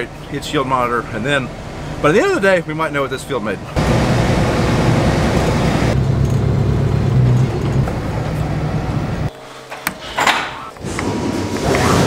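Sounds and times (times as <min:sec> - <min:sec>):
truck engine running inside cab: 0:00.0 - 0:09.4.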